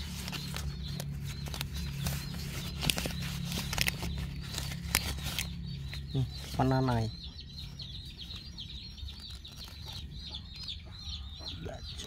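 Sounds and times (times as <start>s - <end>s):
leaves rustling and crackling: 0.0s - 6.8s
steady low hum: 0.0s - 12.0s.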